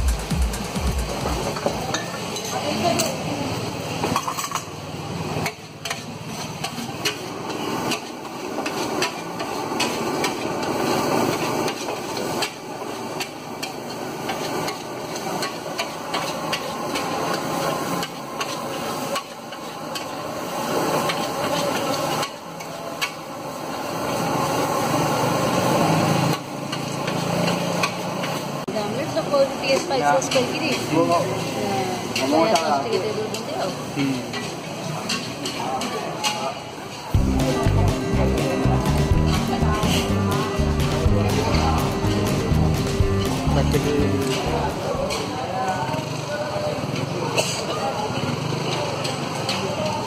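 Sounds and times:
frying hiss: 0:00.2 - 0:50.0
metal spatula clanking on wok: 0:05.4 - 0:20.2.

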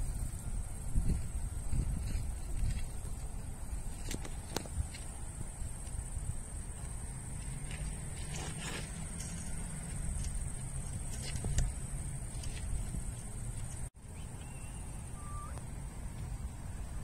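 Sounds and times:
high insect drone: 0:00.0 - 0:17.0
low wind rumble: 0:00.0 - 0:17.0.

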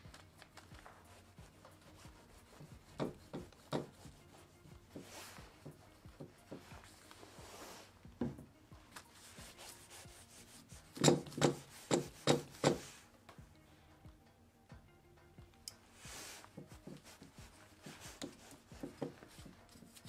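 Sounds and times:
paintbrush scrubbing wet surface: 0:01.0 - 0:07.9, 0:09.1 - 0:13.0.

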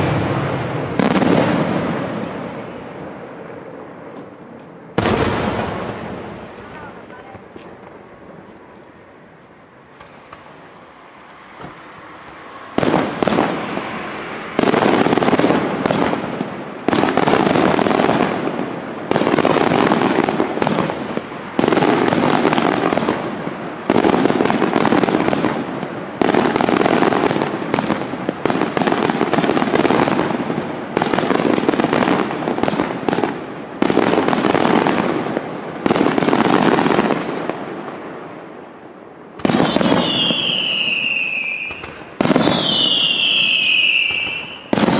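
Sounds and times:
firework shells bursting: 0:09.6 - 0:35.0.

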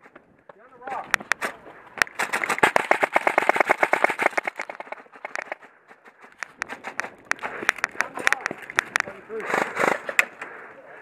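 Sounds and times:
airsoft rifle shots: 0:02.0 - 0:05.6.

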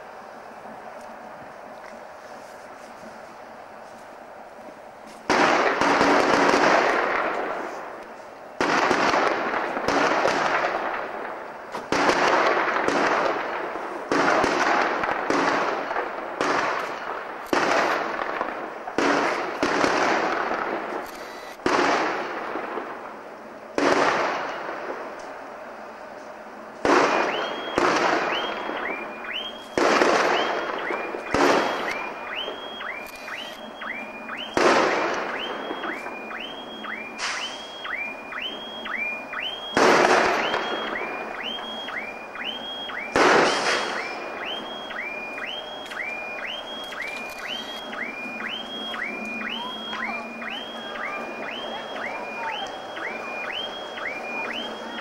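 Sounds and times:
railway detonators banging: 0:26.8 - 0:55.0.

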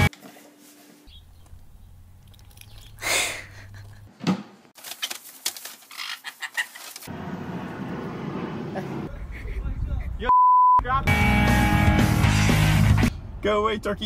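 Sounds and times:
parrots squawking: 0:05.9 - 0:07.0.

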